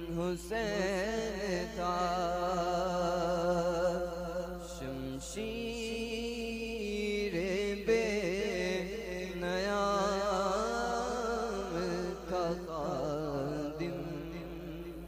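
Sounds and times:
man chanting: 0:00.0 - 0:15.0.

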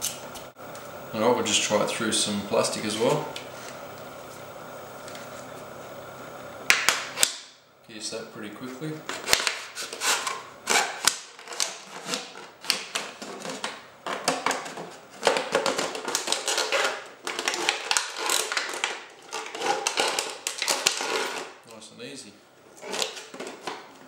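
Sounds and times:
plastic bottle crackling: 0:09.1 - 0:21.6.

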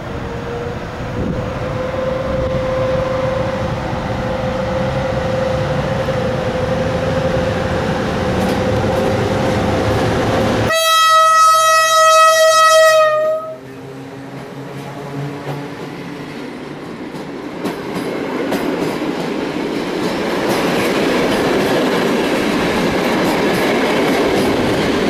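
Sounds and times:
electric locomotive whine and rumble: 0:00.0 - 0:25.0
loud train horn blast: 0:00.3 - 0:06.0, 0:10.6 - 0:15.8.

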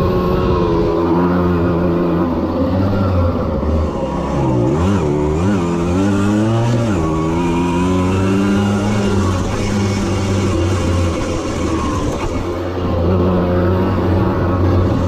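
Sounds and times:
two-stroke moped engine revving: 0:00.0 - 0:15.0.

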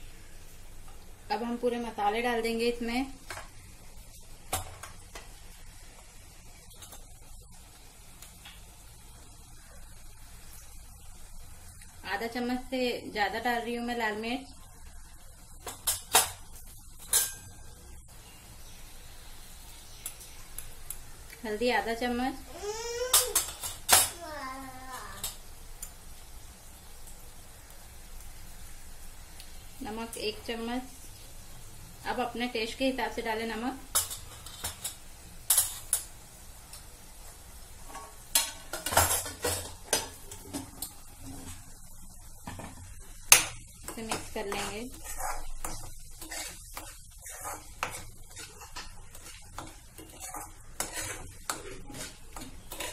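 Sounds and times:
faint hiss: 0:00.0 - 0:52.7
faint sizzle of frying: 0:00.0 - 0:52.9
metal spoon clinking on utensils: 0:17.0 - 0:17.6
metal spoon scraping a pan: 0:33.9 - 0:36.1, 0:43.4 - 0:52.9.

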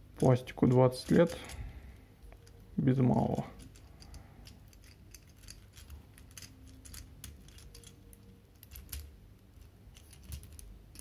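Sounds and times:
plastic toy parts clicking: 0:03.3 - 0:09.2, 0:09.9 - 0:11.0.

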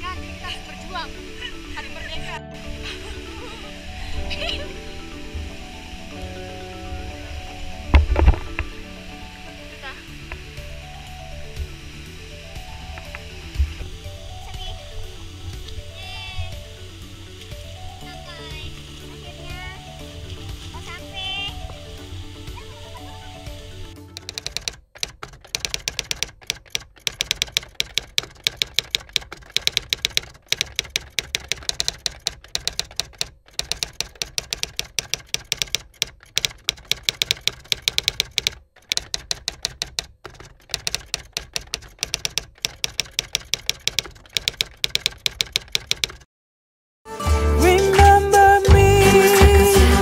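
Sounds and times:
music: 0:00.0 - 0:24.7, 0:47.1 - 0:50.0
typewriter keys clicking: 0:24.1 - 0:46.3.

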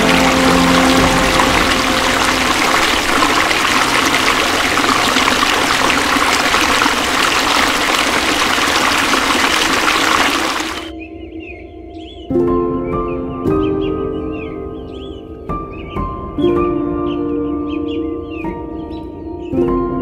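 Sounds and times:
water rushing over boulders: 0:00.0 - 0:10.9.

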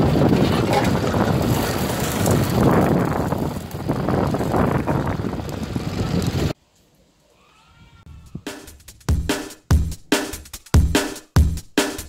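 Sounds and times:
pickup truck driving on dirt: 0:00.0 - 0:06.6
wind buffeting microphone: 0:00.0 - 0:06.6.

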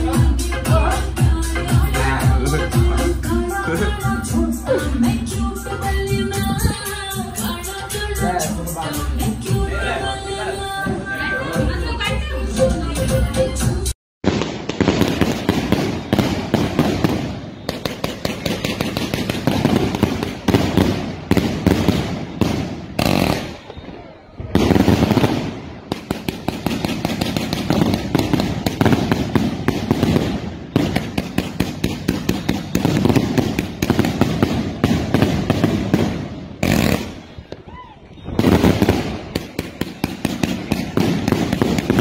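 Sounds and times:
fireworks cracking and popping: 0:14.2 - 0:42.0
firework hiss: 0:14.6 - 0:23.8.

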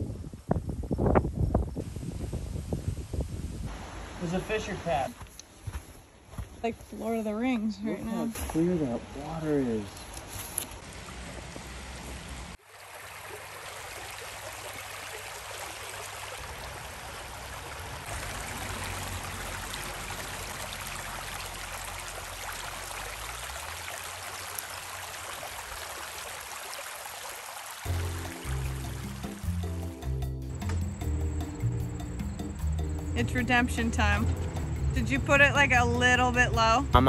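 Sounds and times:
brook flowing over rocks: 0:10.8 - 0:29.5.

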